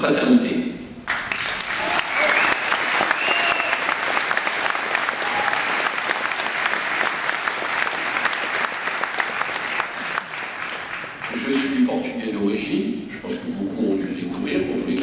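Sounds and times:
audience applauding: 1.1s - 11.6s.

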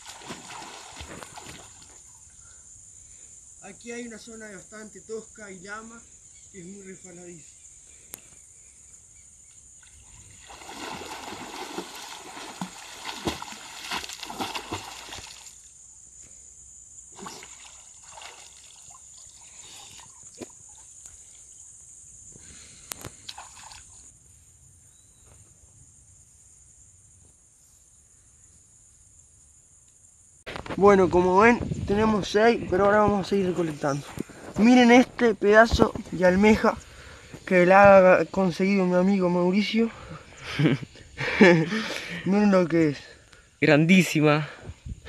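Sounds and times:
water splashing around a wading person: 0.0s - 2.0s, 9.8s - 15.6s, 17.2s - 20.6s, 23.3s - 24.0s.

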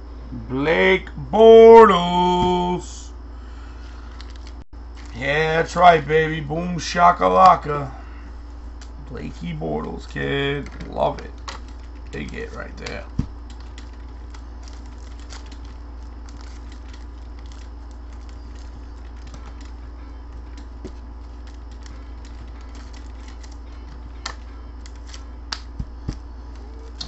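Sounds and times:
low hum: 0.0s - 27.0s.

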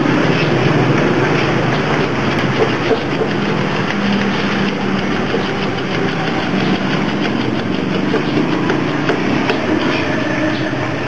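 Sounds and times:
machine hum: 0.0s - 11.0s
ratchet handle clicking: 1.2s - 10.0s.

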